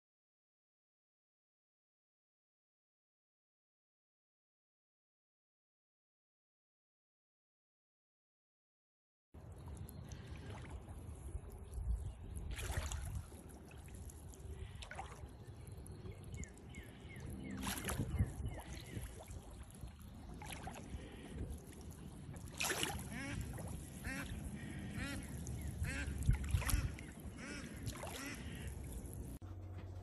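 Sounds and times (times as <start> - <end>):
wind rumble on microphone: 9.5 - 29.4
duck splashing water: 9.6 - 29.4.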